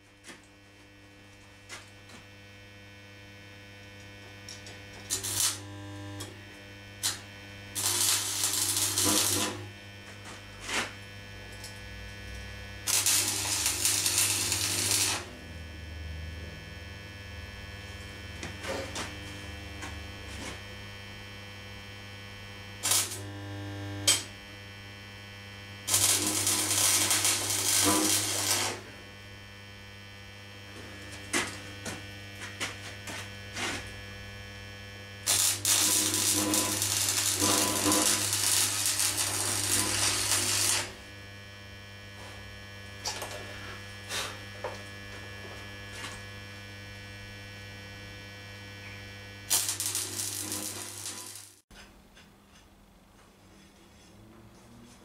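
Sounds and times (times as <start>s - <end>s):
steady electrical hum: 0.0s - 53.2s
welding arc crackle: 0.5s - 15.7s, 22.1s - 51.7s
brief electrical zaps: 5.1s - 5.6s, 7.8s - 9.6s, 12.9s - 15.3s, 22.8s - 23.3s, 24.0s - 24.3s, 25.9s - 28.8s, 35.3s - 40.9s, 49.5s - 51.6s.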